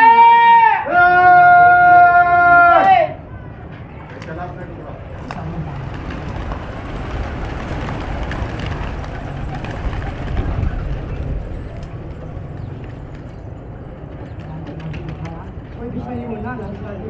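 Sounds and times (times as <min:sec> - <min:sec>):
pigeon wings flapping: 0:05.1 - 0:15.6.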